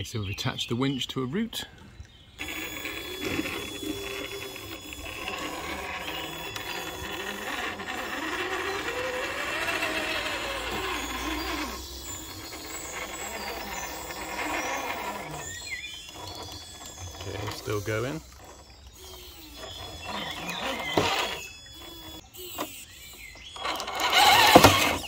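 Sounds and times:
electric winch motor whining: 2.3s - 25.0s.

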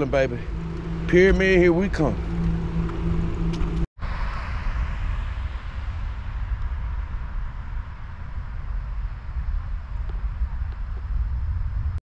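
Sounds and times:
road noise rushing: 0.0s - 9.3s
wind rumbling on microphone: 0.0s - 12.0s.

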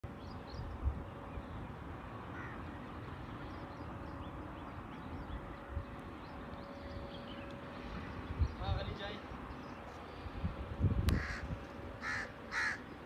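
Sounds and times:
birds calling: 0.0s - 13.0s
harsh bird call: 12.0s - 13.0s.

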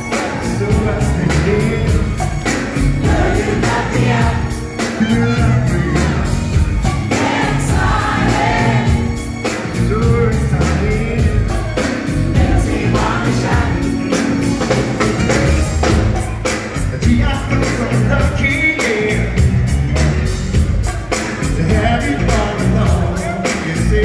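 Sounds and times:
man singing lead: 0.0s - 14.2s, 16.8s - 20.1s, 20.8s - 24.0s
keyboard: 0.0s - 24.0s
steady drum beat: 0.0s - 24.0s
women backing singers: 3.0s - 9.3s, 12.2s - 14.1s.

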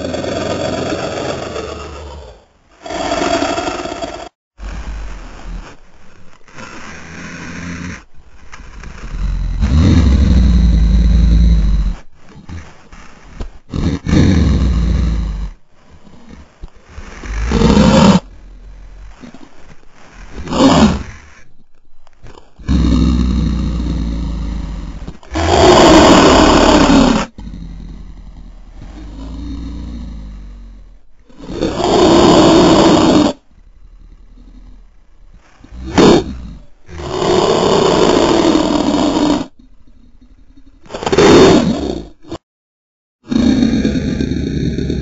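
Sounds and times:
deep monster roar: 0.0s - 5.6s, 8.8s - 12.0s, 17.0s - 19.1s, 22.6s - 34.9s, 35.7s - 39.6s, 43.2s - 45.0s
monster growl: 0.0s - 5.8s, 8.8s - 12.7s, 13.7s - 19.4s, 22.6s - 39.7s, 43.2s - 45.0s.

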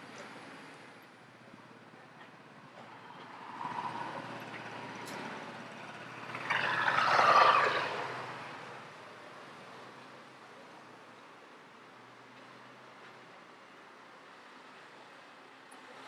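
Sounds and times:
motor scooter passing: 3.2s - 8.8s.

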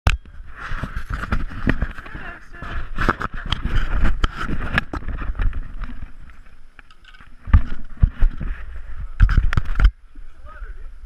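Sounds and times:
heavy bumps on camera: 0.5s - 6.5s.

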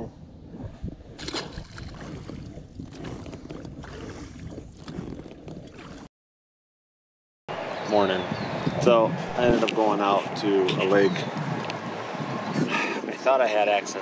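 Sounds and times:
oars splashing through water: 1.1s - 6.1s.

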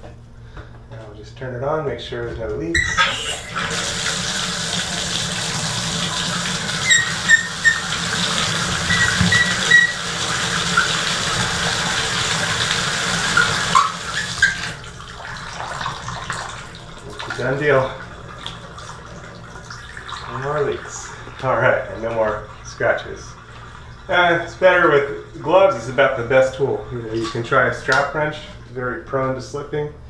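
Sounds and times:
faucet squeaks: 2.8s - 3.8s, 6.6s - 11.3s, 13.2s - 14.8s
water running into bathtub: 2.8s - 28.2s.

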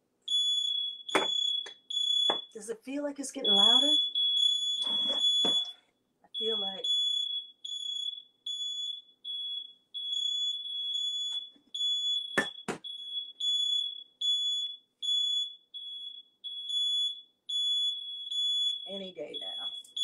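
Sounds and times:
smoke alarm beeping: 0.3s - 2.6s, 3.4s - 20.0s
sharp knocks: 1.1s - 1.4s.

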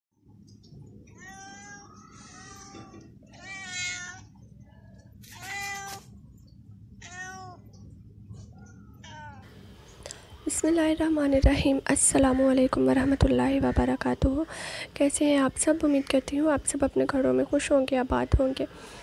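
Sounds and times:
cat meowing: 1.1s - 4.4s, 5.2s - 6.1s, 7.0s - 7.8s, 8.8s - 9.6s.

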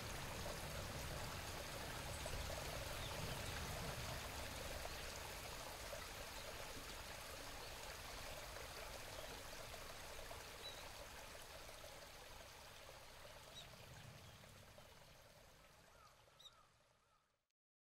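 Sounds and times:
rushing hiss of running water: 0.0s - 13.7s
faint bird chirps: 15.9s - 17.4s.

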